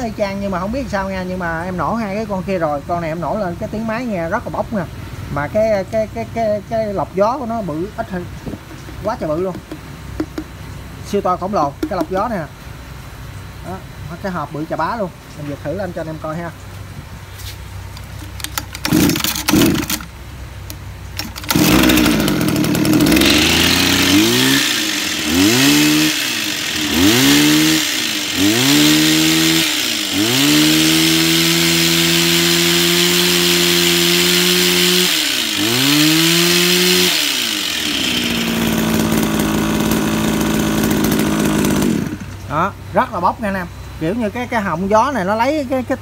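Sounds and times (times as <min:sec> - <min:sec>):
hedge trimmer petrol engine revving: 0:07.9 - 0:10.5, 0:11.8 - 0:12.4, 0:18.0 - 0:20.1, 0:21.2 - 0:42.7.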